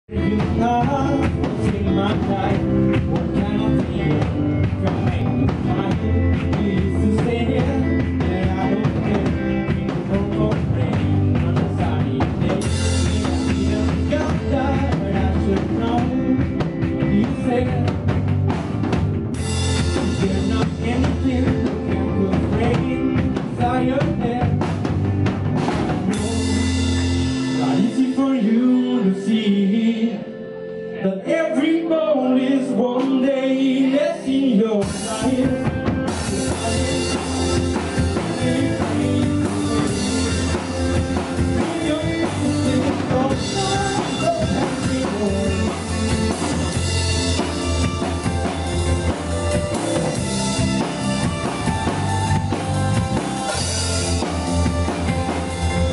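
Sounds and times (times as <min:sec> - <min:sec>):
live rock band playing: 0:00.1 - 0:55.9.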